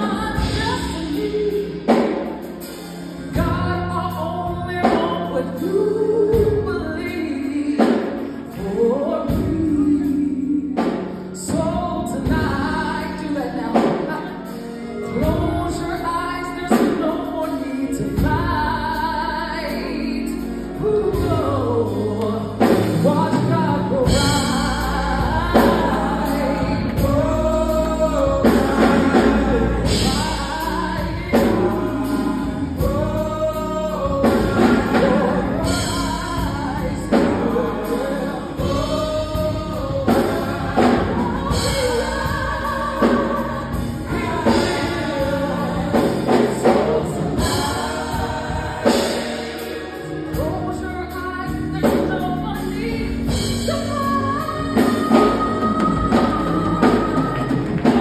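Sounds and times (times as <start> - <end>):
woman singing into a microphone: 0.0 - 2.4, 3.3 - 49.0, 50.4 - 58.0
band accompaniment: 0.0 - 58.0
deep bass line: 15.1 - 58.0.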